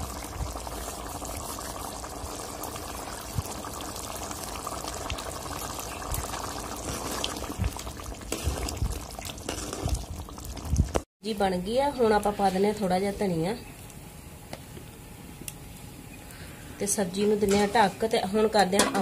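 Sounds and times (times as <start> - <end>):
curry bubbling: 0.0 - 11.1
ladle clattering and splashing: 5.5 - 10.8.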